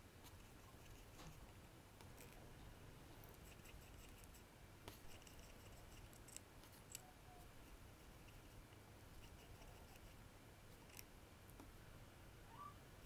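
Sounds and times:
faint small tool clicks and scrapes: 0:03.3 - 0:07.1.

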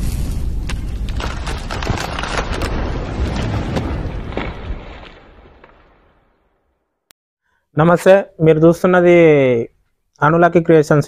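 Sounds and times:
deep rumbling boom: 0:00.0 - 0:06.6
crackling clicks: 0:00.6 - 0:02.9.

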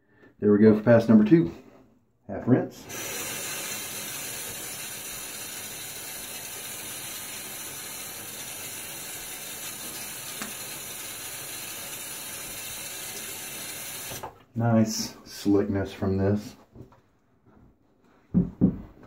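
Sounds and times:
tap running into sink: 0:10.3 - 0:10.7, 0:14.0 - 0:14.4.

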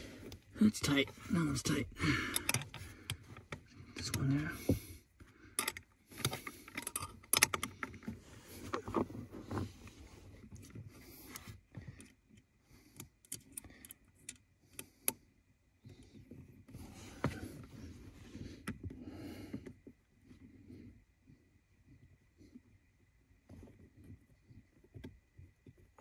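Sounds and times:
rustling of movement: 0:07.8 - 0:13.0.

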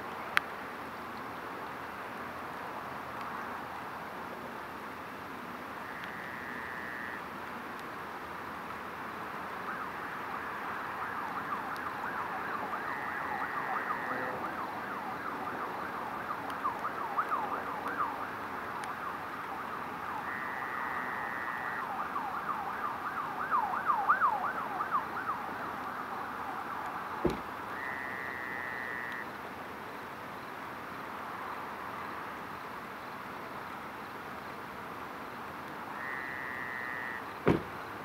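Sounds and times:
emergency vehicle sirens wailing: 0:08.9 - 0:29.3.

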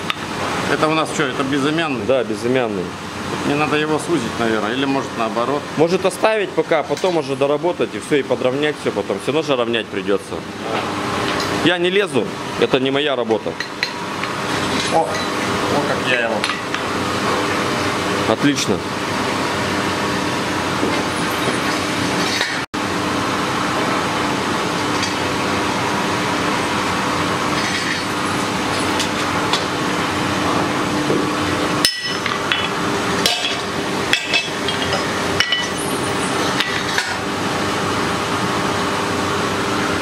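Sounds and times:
forge blower hum: 0:00.0 - 0:40.0
hammer striking metal on anvil: 0:31.8 - 0:35.8.

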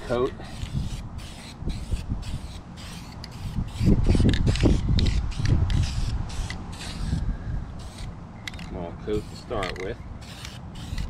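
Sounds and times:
aerosol can spraying hisses: 0:00.5 - 0:07.2, 0:07.8 - 0:08.1, 0:10.2 - 0:11.0.

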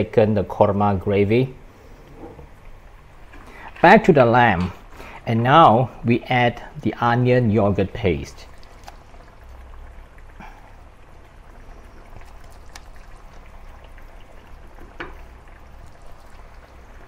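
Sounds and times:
low steady hum: 0:00.0 - 0:17.0
gravy simmering in a wok: 0:05.9 - 0:17.0.

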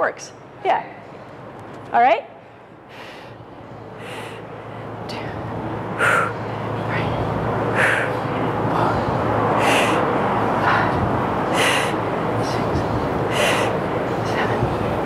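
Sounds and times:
woman breathing quietly: 0:02.4 - 0:05.3, 0:06.0 - 0:06.8, 0:07.7 - 0:12.7, 0:13.3 - 0:13.8.

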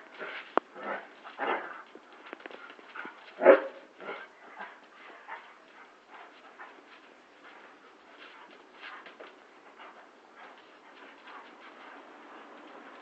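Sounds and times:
dogs barking and yelping: 0:02.5 - 0:05.7.

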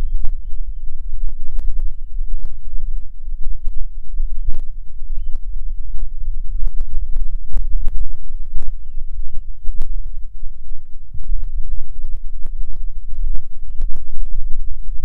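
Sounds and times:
birds calling faintly: 0:00.0 - 0:01.1, 0:03.6 - 0:10.2, 0:13.6 - 0:14.0
wind buffeting microphone: 0:00.0 - 0:15.0.

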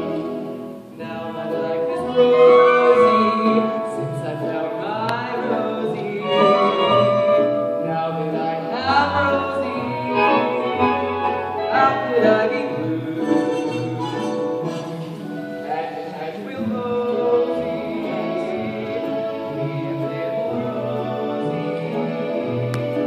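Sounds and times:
instrumental accompaniment: 0:00.0 - 0:23.0
person singing: 0:00.0 - 0:23.0.

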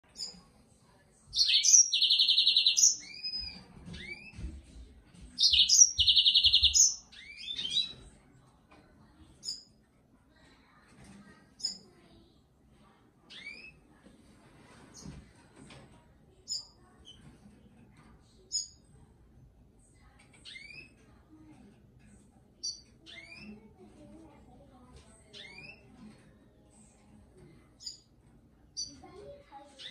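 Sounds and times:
bird chirps: 0:01.4 - 0:04.3, 0:05.4 - 0:08.0
canary singing trills: 0:01.4 - 0:04.3, 0:05.4 - 0:08.1, 0:20.4 - 0:21.0, 0:22.6 - 0:23.6, 0:25.3 - 0:25.9.

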